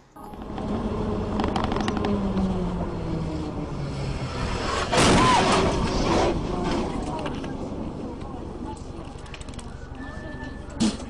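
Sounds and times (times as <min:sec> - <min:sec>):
vehicle engine and road noise: 0:00.0 - 0:11.0
vehicle crashing over rough ground: 0:04.3 - 0:07.6.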